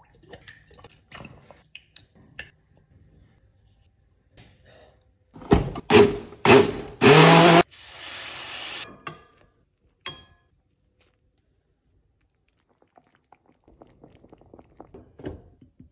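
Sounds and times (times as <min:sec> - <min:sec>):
blender motor whirring: 0:05.9 - 0:08.8
faint crackles: 0:10.8 - 0:15.0.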